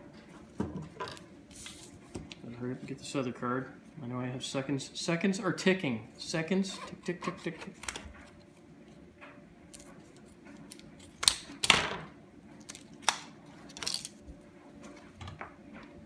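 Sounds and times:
plastic crackling: 12.6 - 14.2
scissors snipping plastic: 12.6 - 14.2.

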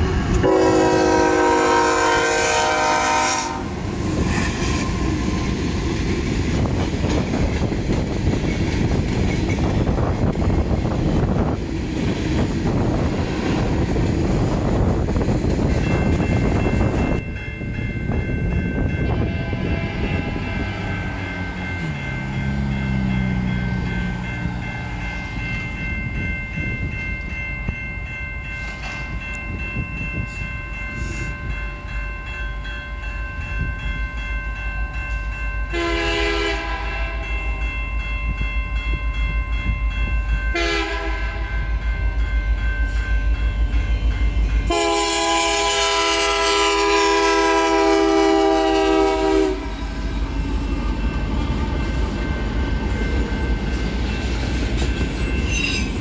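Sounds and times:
train wheels on rails: 0.0 - 56.0
locomotive horn blasts: 0.4 - 3.8, 19.1 - 21.5, 35.7 - 37.2, 40.5 - 41.5, 44.7 - 49.9
crossing signal bell ringing: 12.4 - 56.0.

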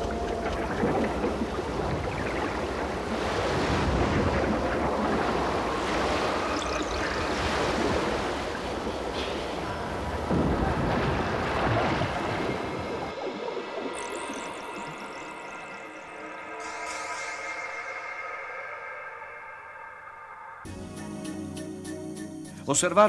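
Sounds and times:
water splashing and churning: 0.0 - 18.0.

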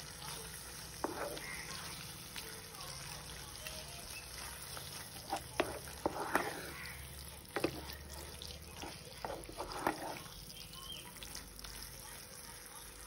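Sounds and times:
faint cooking hiss: 0.0 - 13.0
wooden spatula scraping a pan: 0.8 - 1.9, 4.4 - 10.4.

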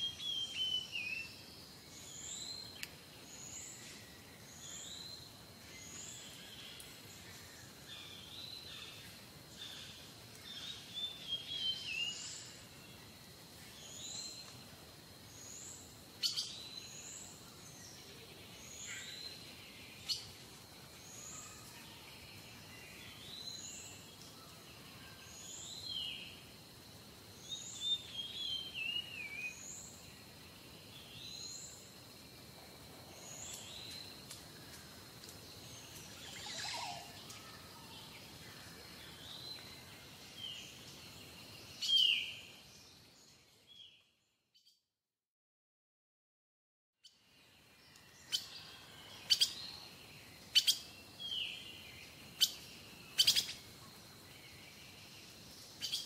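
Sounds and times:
small birds chirping: 0.0 - 32.4, 33.1 - 44.8, 47.0 - 56.0.

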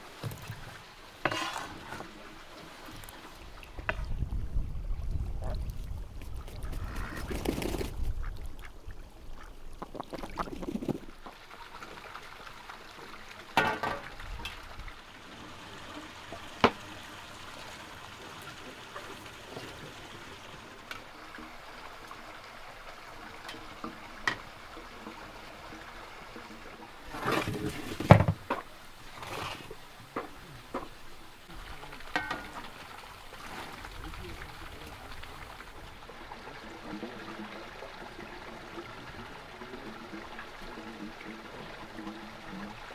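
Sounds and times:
geese calling: 6.6 - 7.6
cooking clinks and knocks: 32.1 - 32.6.

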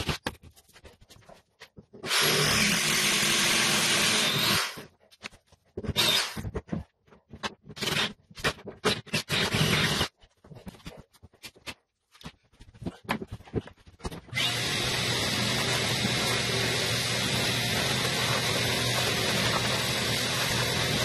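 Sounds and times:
cordless drill boring through wood: 2.0 - 4.9, 5.9 - 6.5, 7.8 - 8.2, 8.8 - 10.1, 14.3 - 21.0.

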